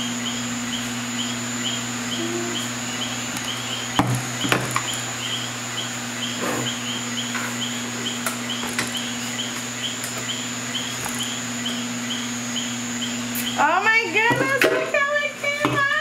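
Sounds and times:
steady hum: 0:00.0 - 0:16.0
high repeating chirp: 0:00.2 - 0:14.3.

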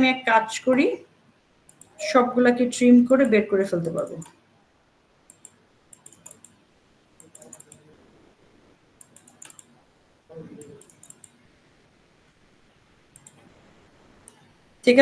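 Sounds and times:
mouse and keyboard clicking: 0:01.7 - 0:02.0, 0:03.0 - 0:04.3, 0:05.3 - 0:06.6, 0:07.2 - 0:07.8, 0:09.0 - 0:09.7, 0:10.6 - 0:11.4, 0:13.1 - 0:13.4.

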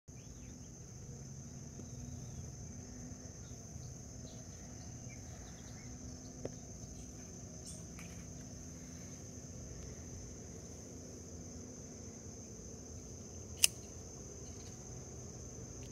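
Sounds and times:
insects droning: 0:00.1 - 0:15.9
small click: 0:13.6 - 0:13.9.

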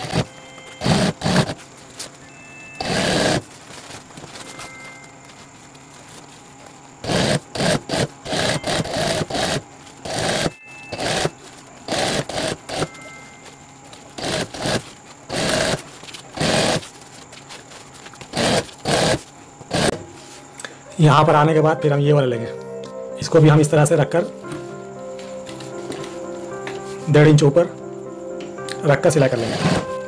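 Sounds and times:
sewing machine stitching: 0:00.0 - 0:01.6, 0:02.8 - 0:03.4, 0:07.0 - 0:11.3, 0:11.9 - 0:12.9, 0:14.2 - 0:15.8, 0:16.4 - 0:16.9, 0:18.3 - 0:20.0.

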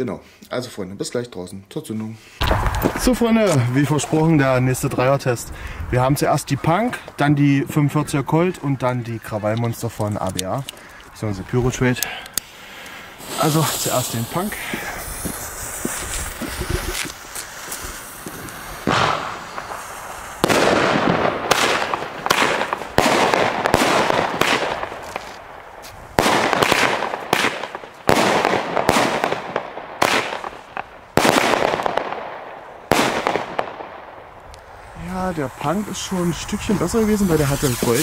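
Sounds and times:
fireworks bangs with hiss: 0:02.4 - 0:06.1, 0:11.9 - 0:38.0.

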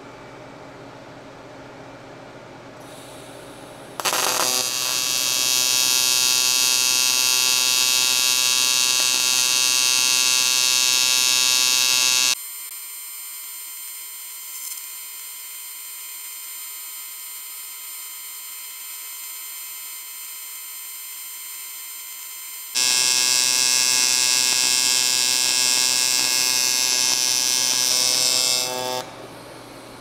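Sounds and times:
welding arc crackling and buzzing: 0:04.0 - 0:12.4, 0:22.8 - 0:29.1.

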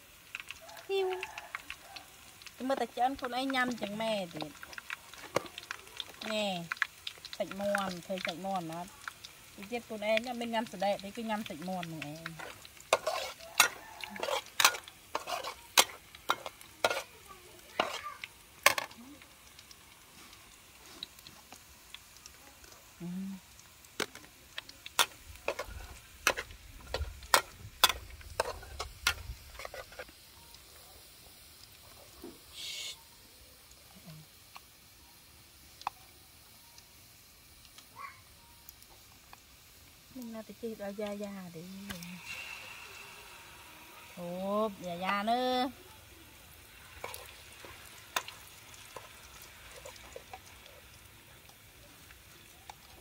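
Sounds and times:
food sizzling in oil: 0:00.0 - 0:53.0
metal spatula scraping pan: 0:12.4 - 0:17.2, 0:17.8 - 0:18.0, 0:25.0 - 0:30.1.

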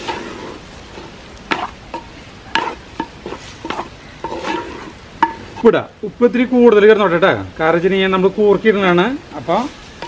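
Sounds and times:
wooden spatula scraping clay pot: 0:00.0 - 0:05.7
meat sizzling: 0:00.0 - 0:06.9, 0:07.9 - 0:10.0.

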